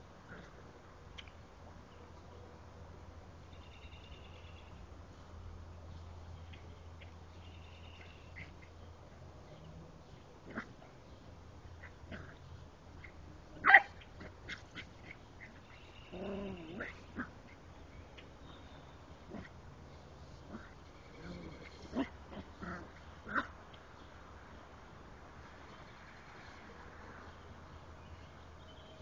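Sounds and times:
puppy barking: 13.6s - 14.9s.

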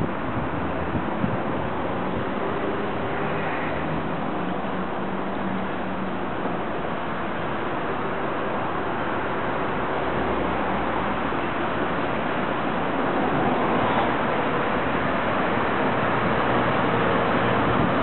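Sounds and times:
steady rushing noise: 0.0s - 18.0s.

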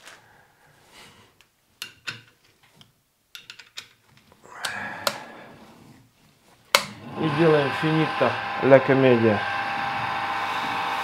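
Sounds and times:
clicks and light knocks: 1.4s - 4.4s.

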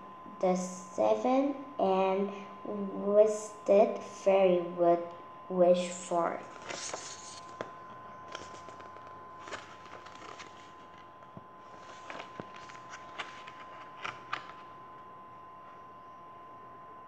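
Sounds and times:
book pages turning: 6.4s - 14.8s.

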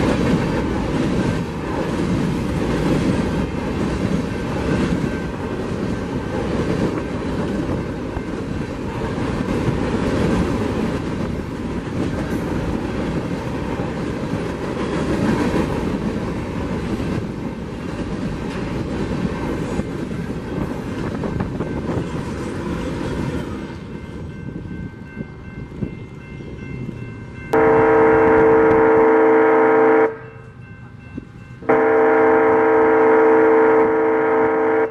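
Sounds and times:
steel wheels rolling on rails: 0.0s - 27.6s.

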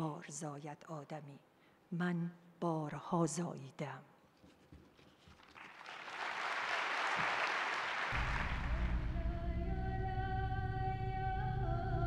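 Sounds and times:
audience applause: 5.5s - 9.0s
long held singing melody: 9.0s - 12.0s.

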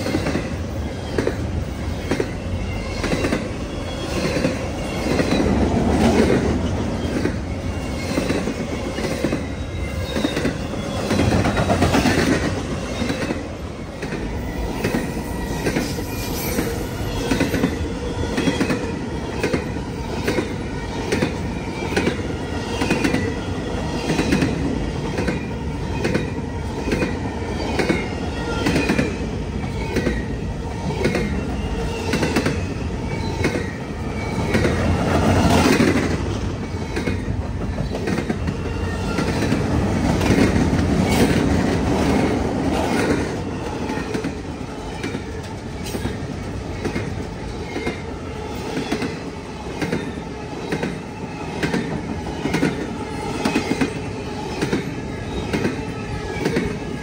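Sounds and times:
freight train rumble: 0.0s - 57.0s
high wavering wheel squeal: 14.4s - 18.2s.

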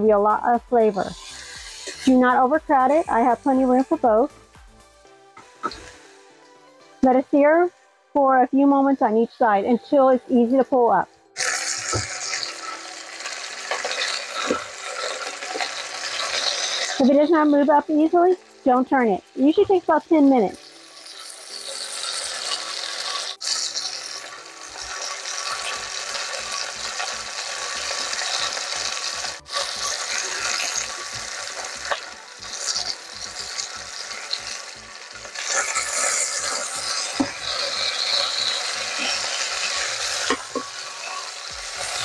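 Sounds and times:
meat sizzling in oil: 1.1s - 2.8s, 11.4s - 18.6s, 20.3s - 42.0s.

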